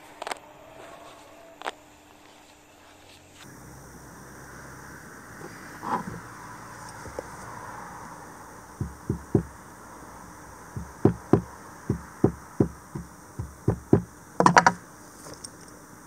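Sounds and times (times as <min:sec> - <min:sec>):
hammer knocks: 0:08.8 - 0:09.6, 0:10.8 - 0:14.8.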